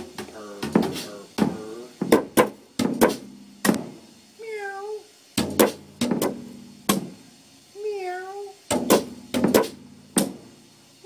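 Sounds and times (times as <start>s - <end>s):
cat meowing: 4.4s - 5.1s, 7.8s - 8.6s.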